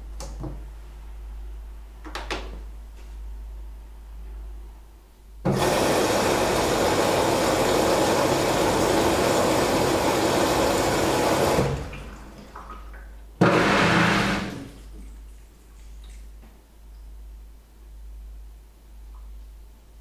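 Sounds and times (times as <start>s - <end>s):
washing machine water rushing in: 5.5s - 15.9s.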